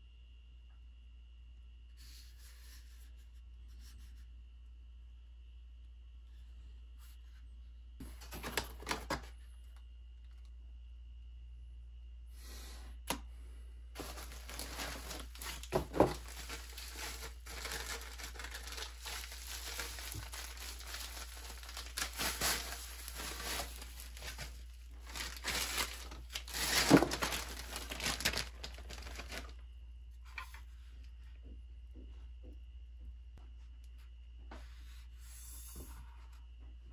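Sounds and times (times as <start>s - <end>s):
bubble wrap crinkling: 14.0s - 29.6s.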